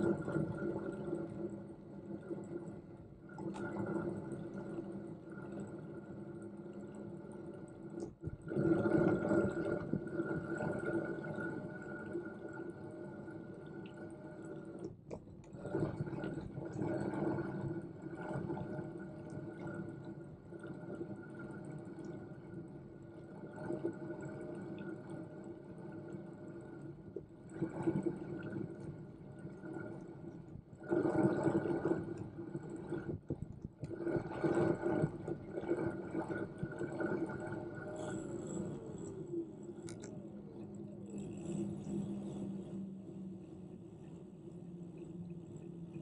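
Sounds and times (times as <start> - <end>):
electric bike motor hum: 38.1 - 46.0.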